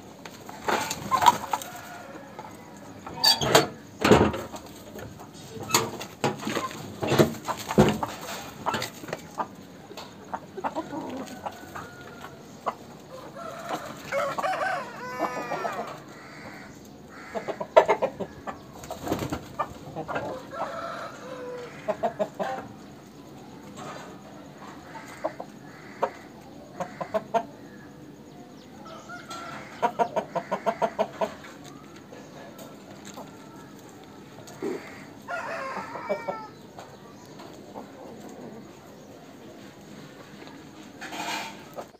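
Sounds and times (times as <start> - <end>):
roosters clucking: 0.0 - 41.9
rooster crowing: 1.4 - 3.4, 13.1 - 17.5, 20.3 - 22.2, 28.8 - 30.9, 34.6 - 36.6.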